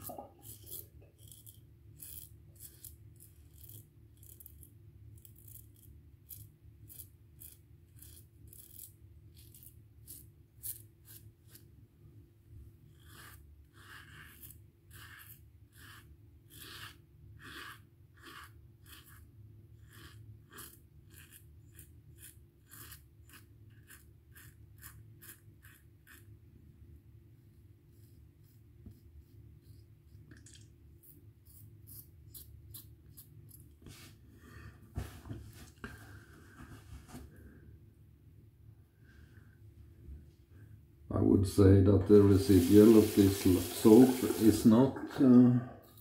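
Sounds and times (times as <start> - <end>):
razor scraping stubble: 0.0 - 11.6, 12.9 - 26.3, 31.0 - 33.7.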